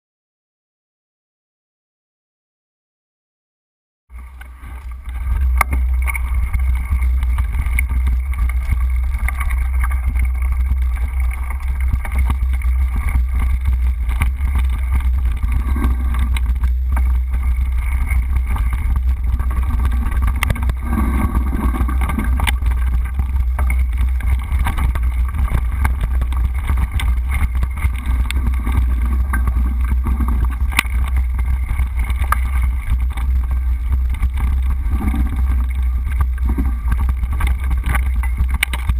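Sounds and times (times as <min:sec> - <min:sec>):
bike clicks and rattles: 0:04.2 - 0:38.9
wind buffeting microphone: 0:04.5 - 0:38.9.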